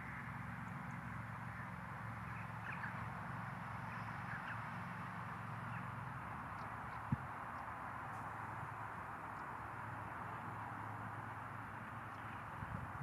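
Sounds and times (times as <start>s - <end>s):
faint bird calls: 1.0s - 3.1s, 3.9s - 4.8s.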